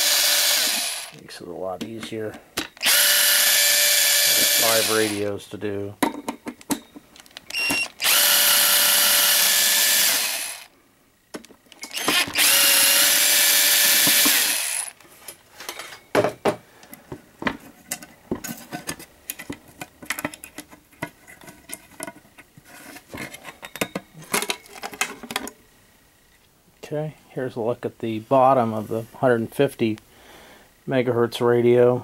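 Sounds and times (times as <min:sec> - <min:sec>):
cordless drill running: 0:00.0 - 0:01.2, 0:02.8 - 0:05.3, 0:07.5 - 0:10.8, 0:11.8 - 0:15.0.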